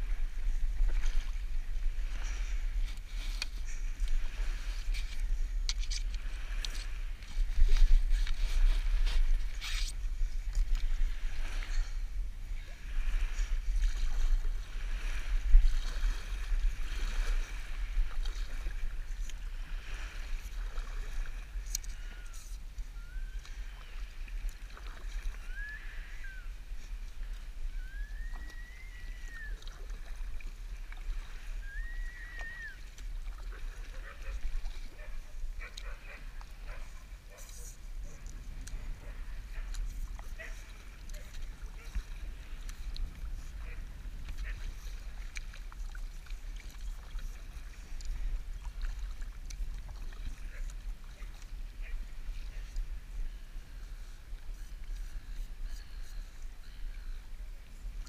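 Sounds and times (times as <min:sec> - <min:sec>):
paddle splashing in water: 0:00.0 - 0:12.0, 0:12.6 - 0:56.9
water sloshing against hull: 0:00.0 - 0:58.0
short high calls: 0:25.4 - 0:26.6, 0:27.8 - 0:29.6, 0:31.6 - 0:32.8.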